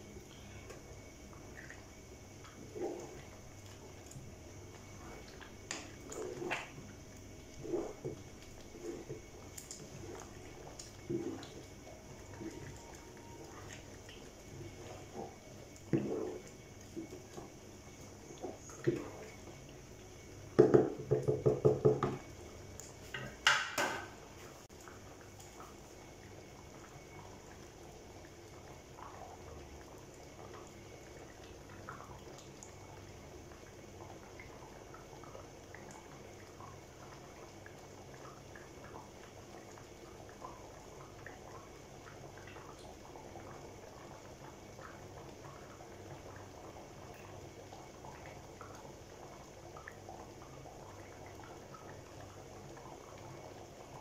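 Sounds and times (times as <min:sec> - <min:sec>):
stew simmering and bubbling: 0:00.0 - 0:54.0
wooden spoon stirring pot: 0:07.5 - 0:13.7, 0:14.4 - 0:17.5.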